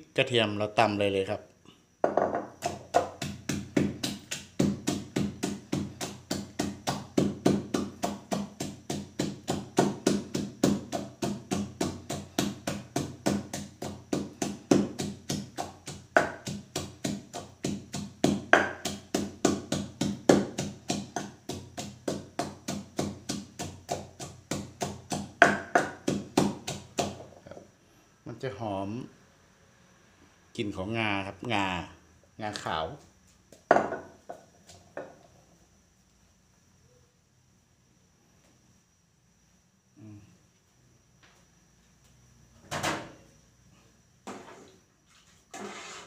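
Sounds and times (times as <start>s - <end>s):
pestle pounding in clay mortar: 2.0s - 27.4s.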